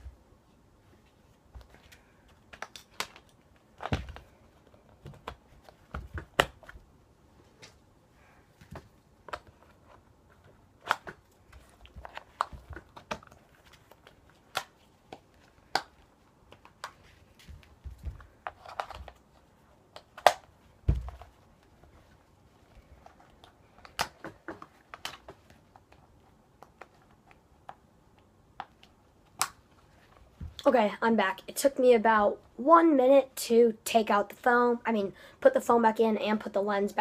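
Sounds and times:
plastic mask clicks and snaps: 2.5s - 4.3s, 10.8s - 11.3s, 12.0s - 17.0s, 19.9s - 20.5s, 23.8s - 25.4s, 28.6s - 29.7s.

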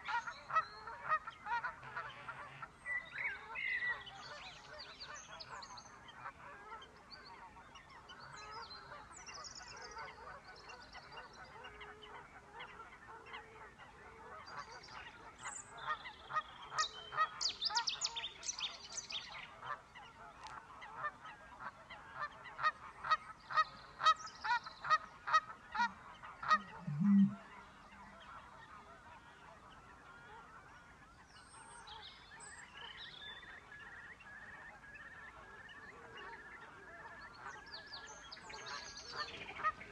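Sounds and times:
faint high songbird calls: 0.0s - 13.4s, 22.2s - 39.9s
geese honking: 24.9s - 30.9s.

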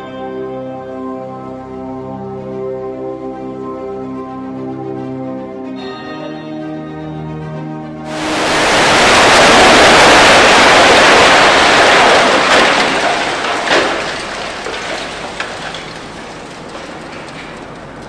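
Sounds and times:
debris knocks: 8.1s - 18.0s
rush of falling rubble: 8.1s - 18.0s.

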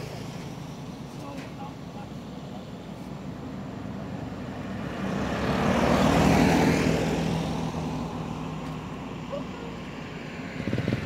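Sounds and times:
vehicle passing on road: 0.0s - 11.0s.

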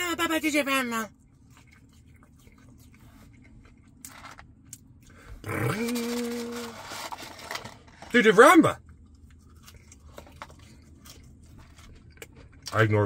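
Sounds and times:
man chewing: 1.2s - 6.2s, 8.8s - 12.8s
man humming mmm: 5.4s - 6.7s
paper carton rustling: 5.9s - 8.3s.

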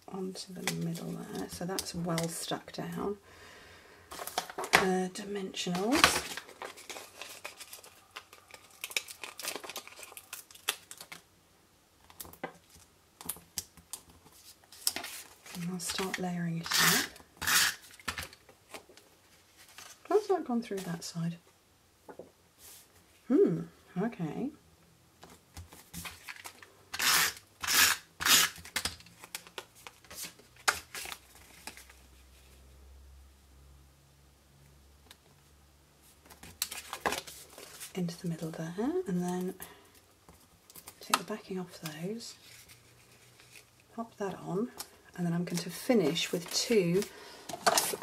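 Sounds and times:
paper crinkling and crackling: 5.6s - 11.2s, 12.0s - 16.4s, 17.8s - 20.9s, 28.6s - 32.2s, 36.2s - 39.5s, 40.3s - 44.0s, 44.6s - 48.0s
paper rustling: 5.7s - 11.2s, 14.0s - 16.2s, 36.0s - 38.0s, 42.4s - 43.9s
tape runner zipping: 16.6s - 18.0s, 26.9s - 28.8s.

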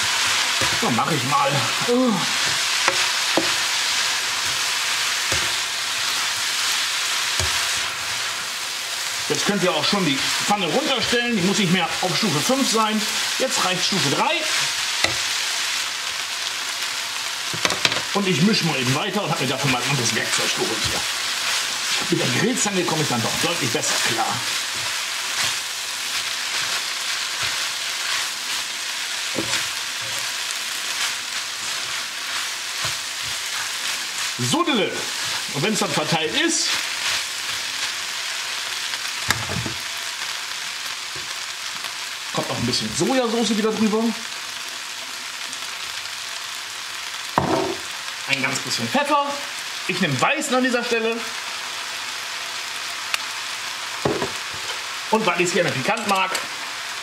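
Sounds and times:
noodles sizzling in a wok: 0.0s - 57.0s
tongs knocking in a pan: 15.0s - 15.3s.

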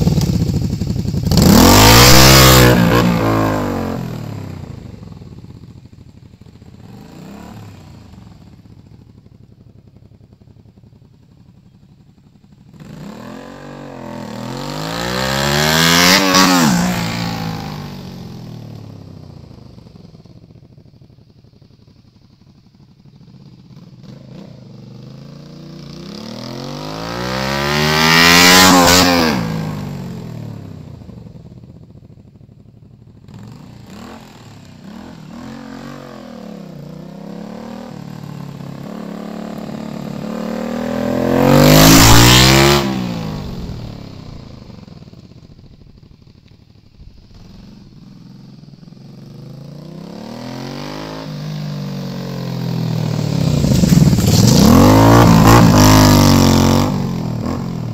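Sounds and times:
motorcycle riding past: 0.0s - 11.7s, 12.3s - 57.9s
motorcycle engine revving: 0.0s - 57.9s.

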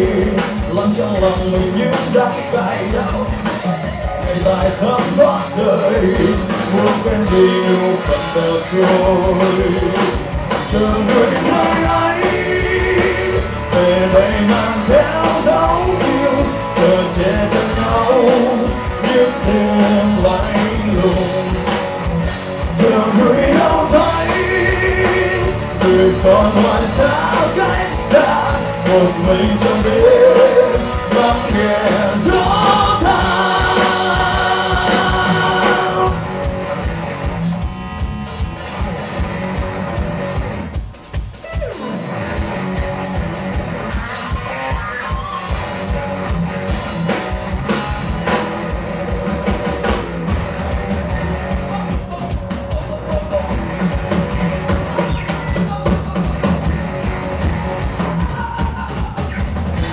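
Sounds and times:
man singing lead vocal: 0.0s - 36.3s, 51.5s - 56.7s, 57.9s - 59.9s
rock band playing live: 0.0s - 59.9s.

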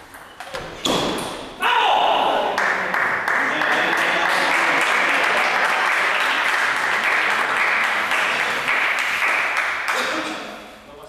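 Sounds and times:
spectators applauding: 2.5s - 10.3s.

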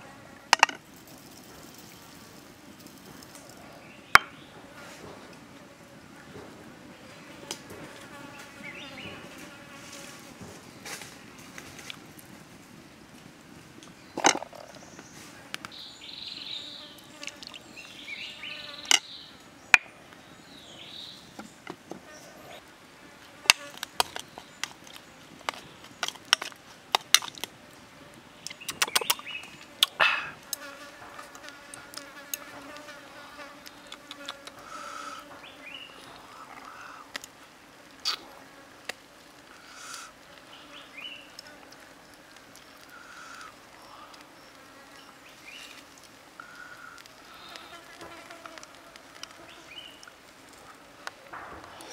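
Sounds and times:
insect buzzing: 15.7s - 19.3s, 27.8s - 51.9s.

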